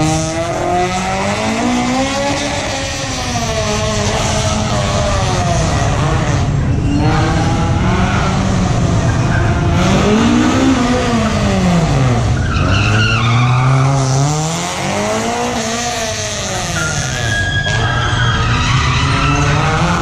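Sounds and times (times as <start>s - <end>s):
car engine revving: 0.0s - 20.0s
tyre squeals: 2.4s - 7.7s, 12.3s - 14.4s, 15.9s - 20.0s.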